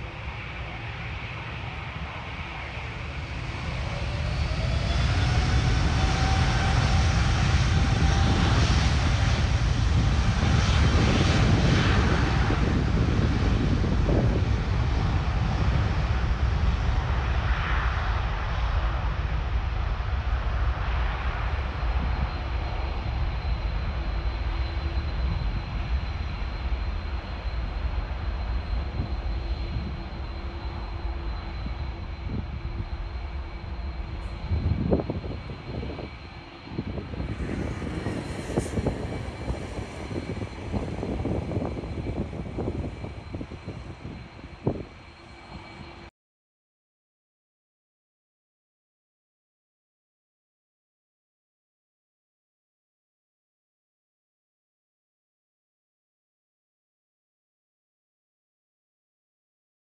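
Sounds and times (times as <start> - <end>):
jet engine rumble: 0.0 - 46.1
jet engines spooling up: 0.0 - 46.1.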